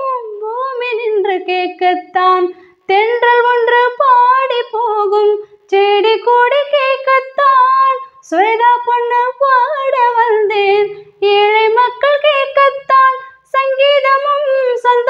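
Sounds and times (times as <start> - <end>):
woman singing unaccompanied: 0.0 - 15.0
singer breathing: 2.5 - 2.8.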